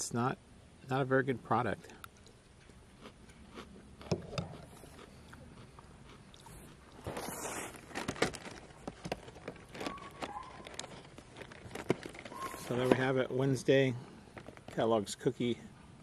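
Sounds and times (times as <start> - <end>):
chewing crunchy cereal: 1.9 - 13.0.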